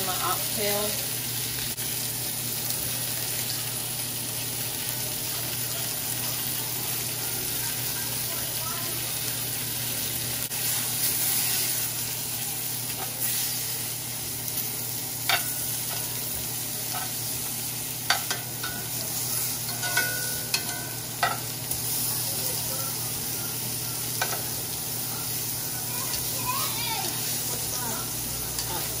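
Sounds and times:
meat sizzling in a skillet: 0.0 - 29.0
metal tongs clinking on pan: 12.9 - 13.4, 15.2 - 16.2, 16.8 - 17.4, 18.0 - 21.9, 24.1 - 24.6, 28.5 - 29.0.

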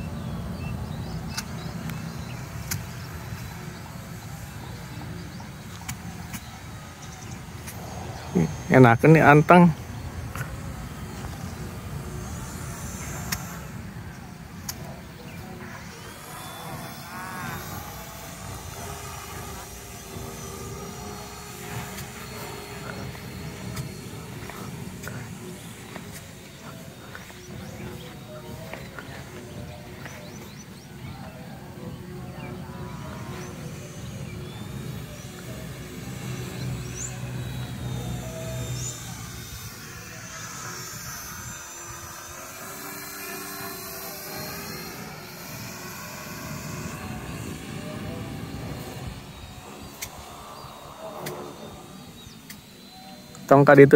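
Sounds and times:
steady low rumble: 0.0 - 42.8
electric model plane whine: 0.0 - 53.9.

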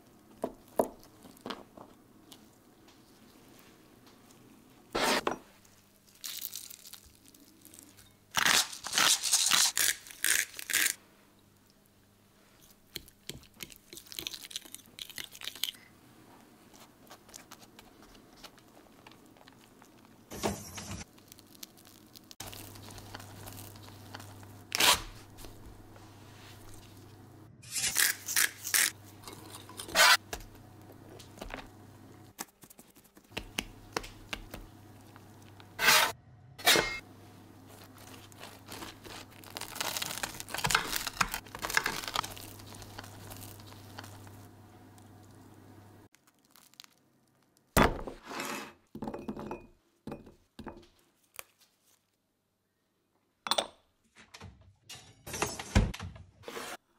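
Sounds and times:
crunching and tearing bread: 6.0 - 11.0, 21.0 - 25.2, 37.6 - 44.4, 46.1 - 47.8.

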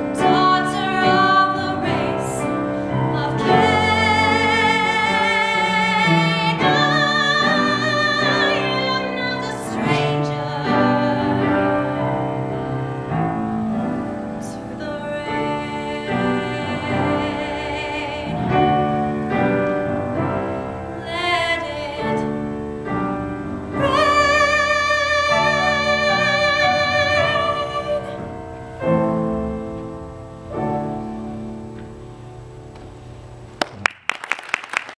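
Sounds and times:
woman singing a ballad: 0.0 - 13.2, 14.3 - 19.4, 21.0 - 22.6, 23.7 - 28.3
piano accompaniment: 0.0 - 34.2.

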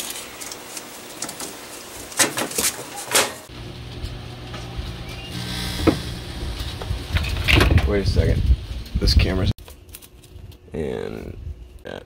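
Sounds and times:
microwave humming: 0.0 - 7.8.

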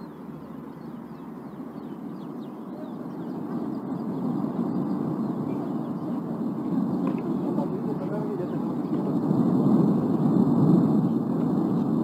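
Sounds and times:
high bird chirps: 0.0 - 6.2
low rumble of volcano: 0.0 - 12.0.

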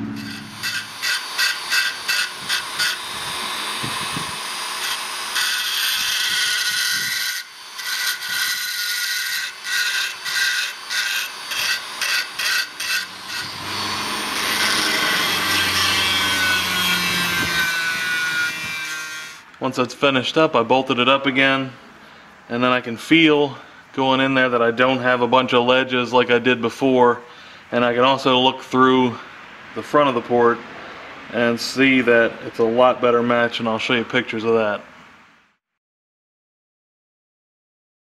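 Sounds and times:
rotary tool grinding steel: 0.0 - 19.6.

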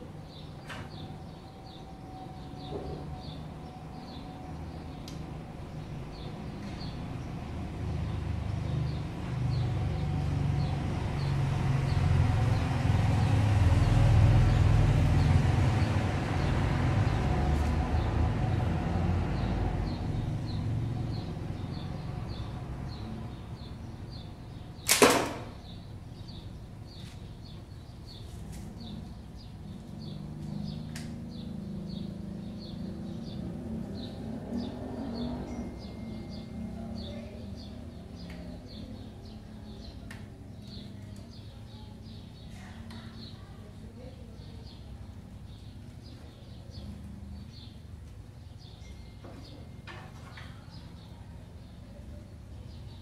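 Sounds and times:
arrow striking target: 24.9 - 25.6.

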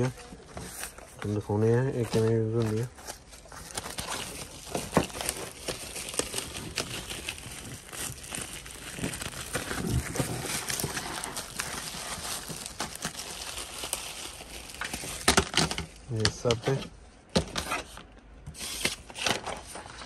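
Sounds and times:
plastic wrapping crinkling: 0.0 - 16.6.

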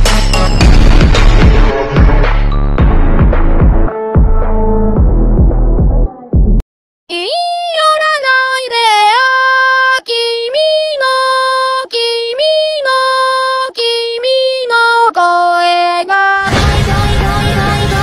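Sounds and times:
woman singing unaccompanied: 7.1 - 18.0.

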